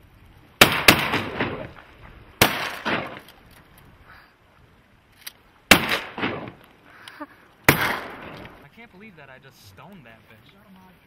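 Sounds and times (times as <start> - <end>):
quieter gunshot echo: 0.6 - 1.8, 2.4 - 3.2, 5.7 - 6.6, 7.7 - 8.6
shotgun blasts: 0.6 - 1.8, 2.4 - 3.2, 5.7 - 6.6, 7.7 - 8.6.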